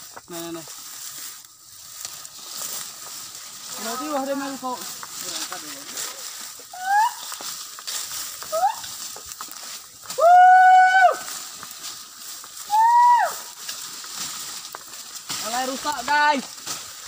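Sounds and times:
high-pitched hooting calls: 6.7s - 7.4s.

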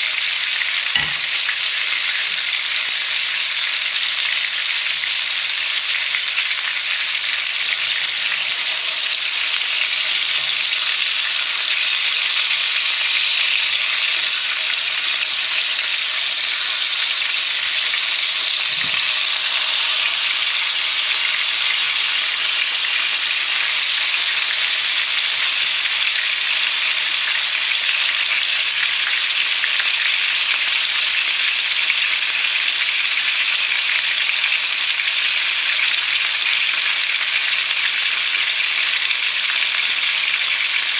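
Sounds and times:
fish sizzling in oil: 0.0s - 40.9s
spatula knocking in pan: 1.0s - 1.6s.

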